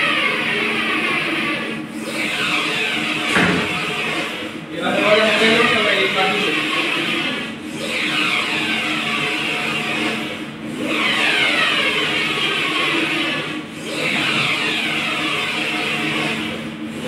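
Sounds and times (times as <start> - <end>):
printer carriage whirring: 0.0 - 17.0.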